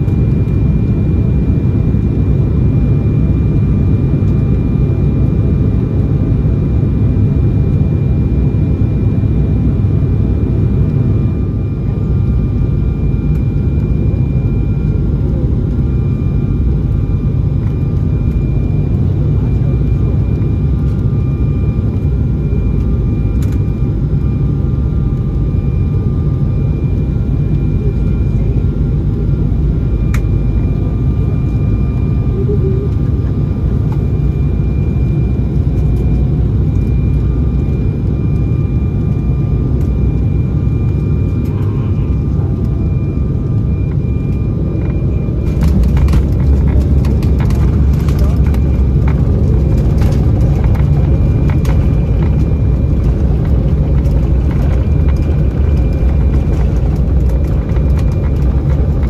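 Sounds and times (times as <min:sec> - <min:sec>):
airflow rumble in aircraft cabin: 0:00.0 - 0:59.0
jet engine whine: 0:00.0 - 0:59.0.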